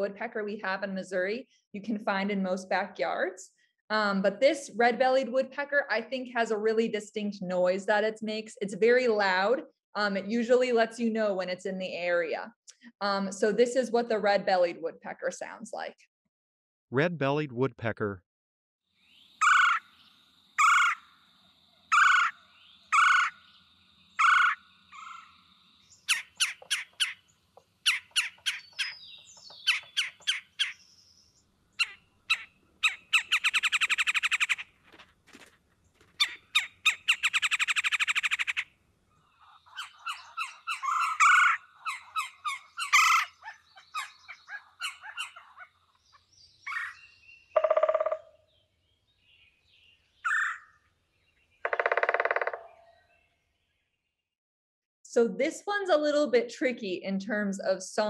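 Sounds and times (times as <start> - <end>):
woodpecker call notes: 19.0 - 34.7, 36.2 - 48.7, 49.3 - 53.2
woodpecker drumming on wood: 47.6 - 48.4, 51.6 - 52.9.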